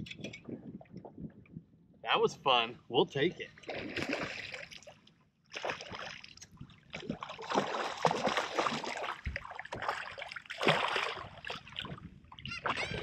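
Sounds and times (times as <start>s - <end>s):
fish splashing at water surface: 3.6s - 12.0s.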